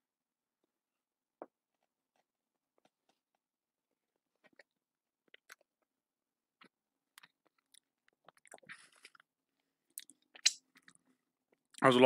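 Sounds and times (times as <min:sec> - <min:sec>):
faint chewing cookie: 0:04.4 - 0:05.9, 0:06.6 - 0:11.8.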